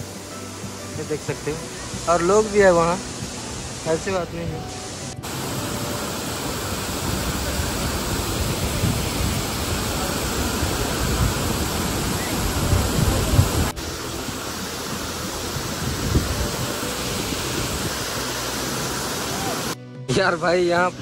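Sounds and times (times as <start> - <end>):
waterfall rushing: 0.0 - 19.8.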